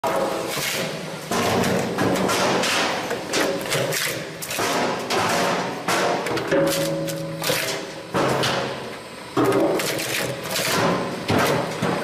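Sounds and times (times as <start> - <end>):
crushing machine cracks and thuds: 1.3 - 8.7.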